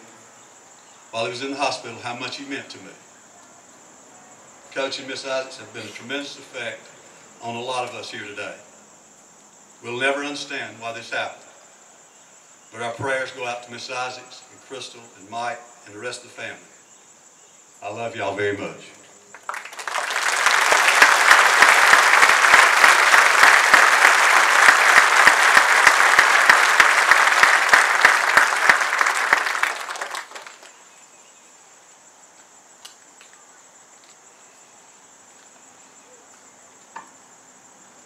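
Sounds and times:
insects chirring: 0:00.0 - 0:38.0
crowd applauding: 0:19.3 - 0:30.8.

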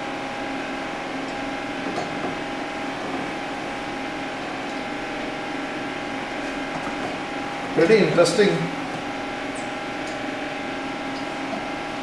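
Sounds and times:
blower fan hum: 0:00.0 - 0:12.0.

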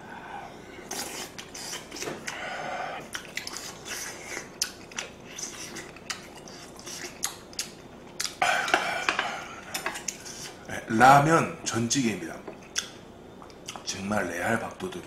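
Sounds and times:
person chewing with wet smacks: 0:03.0 - 0:10.6.

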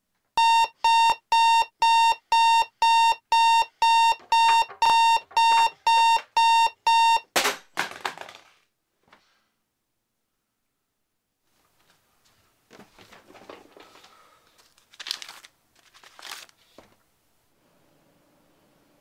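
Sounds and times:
alarm clock beeping: 0:00.4 - 0:07.3.

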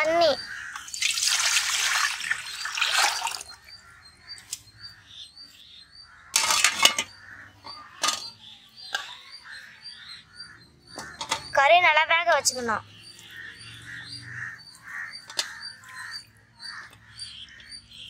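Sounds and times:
water pouring and splashing: 0:00.7 - 0:03.6
small bird chirping: 0:02.1 - 0:18.0
metal plate clattering: 0:06.3 - 0:08.3, 0:11.0 - 0:11.6.

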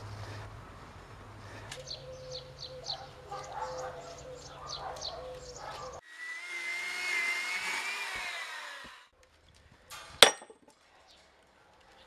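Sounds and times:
birds chirping: 0:00.0 - 0:06.0
electric chainsaw whining: 0:06.0 - 0:09.1.

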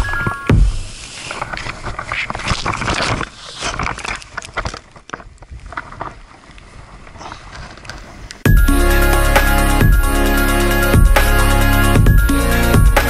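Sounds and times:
knocks and crunches: 0:01.4 - 0:06.2.

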